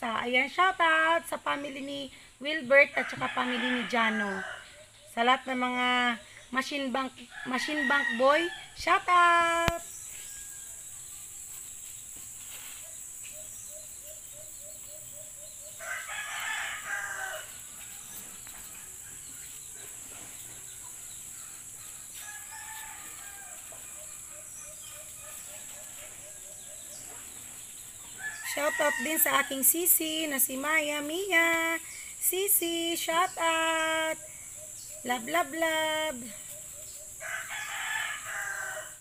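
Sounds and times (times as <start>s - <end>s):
rooster crowing: 3.0s - 5.0s, 7.4s - 8.8s, 15.6s - 19.4s, 22.1s - 27.0s, 28.1s - 29.6s, 37.2s - 39.0s.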